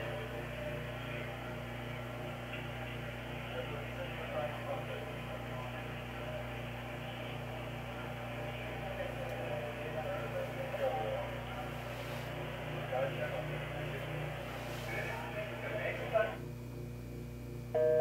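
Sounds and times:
electrical hum: 0.0 - 18.0
faint murmur of voices: 0.0 - 18.0.

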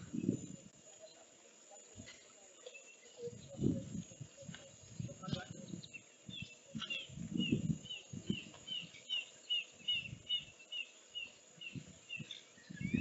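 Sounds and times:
bird chirping: 5.0 - 13.0.

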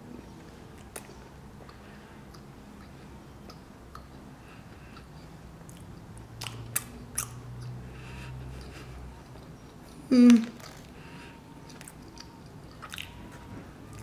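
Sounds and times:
mouth chewing clicks and smacks: 0.7 - 4.3, 4.9 - 7.8, 11.6 - 13.2.

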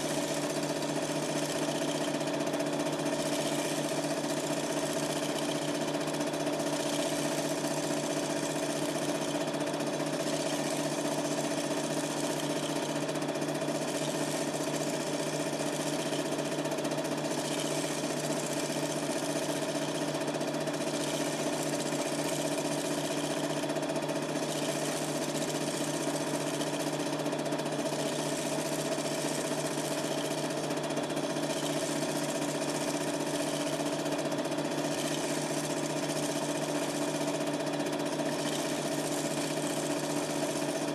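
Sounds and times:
film projector humming and rattling: 0.0 - 40.9.

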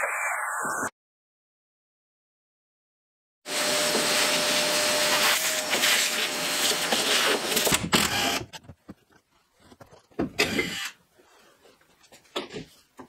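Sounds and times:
shop vacuum running: 3.5 - 7.7.

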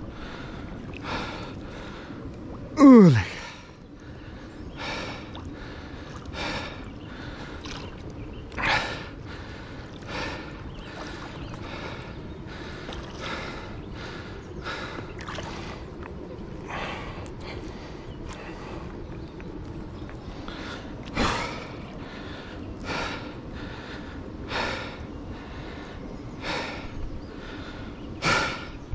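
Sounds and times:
man breathing hard: 0.0 - 7.8, 8.5 - 15.8, 20.2 - 28.9.

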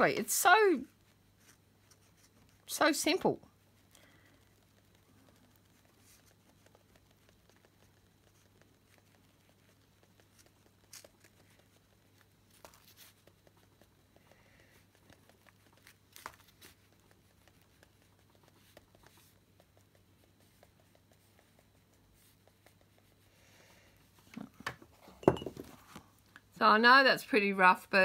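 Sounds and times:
stylus scratching on card: 4.2 - 13.9.

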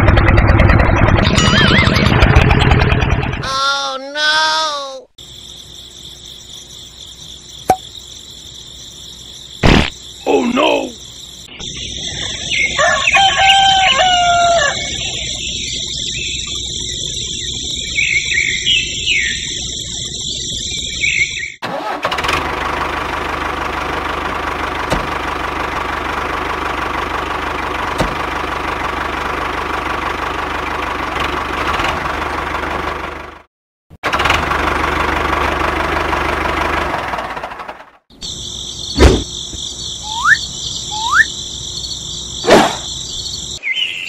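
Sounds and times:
insects chirring: 5.2 - 21.6, 38.1 - 44.0
rooster crowing: 12.2 - 15.3
short bird calls: 40.0 - 41.4.

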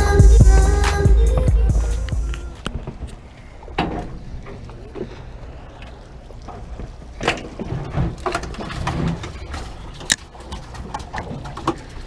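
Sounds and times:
low steady rumble: 0.0 - 7.2.

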